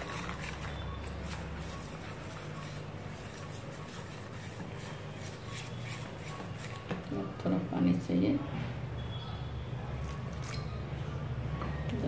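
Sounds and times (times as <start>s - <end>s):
whisk scraping a steel bowl: 0.0s - 7.1s.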